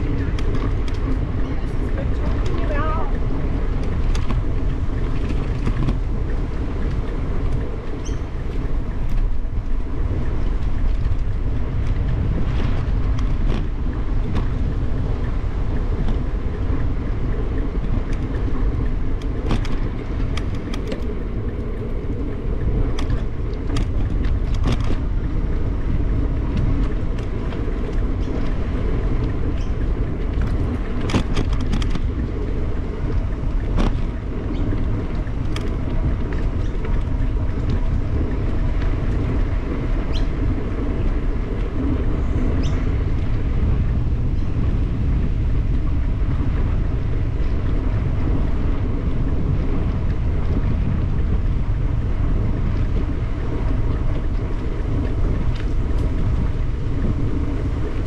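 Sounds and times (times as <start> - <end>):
bicycle clicks and rattles: 0.0 - 58.0
bicycle tyre noise: 0.0 - 58.0
wind on microphone: 0.0 - 58.0.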